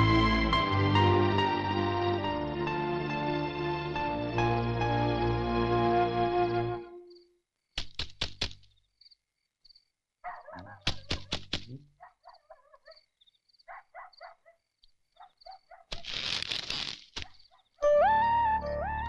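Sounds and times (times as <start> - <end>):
insects chirping: 6.9 - 7.8, 8.6 - 10.7, 12.1 - 17.8.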